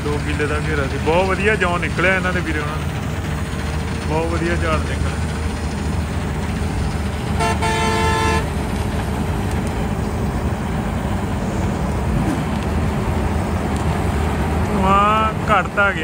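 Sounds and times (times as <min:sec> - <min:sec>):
combine harvester running: 0:00.0 - 0:16.0
vehicle horn: 0:07.4 - 0:08.6.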